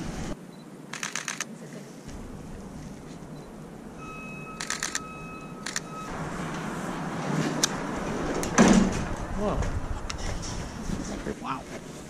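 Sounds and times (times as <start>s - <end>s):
street background noise: 0.0s - 12.0s
camera shutter burst: 0.9s - 1.5s, 4.6s - 5.9s
steady high tone: 3.2s - 7.2s.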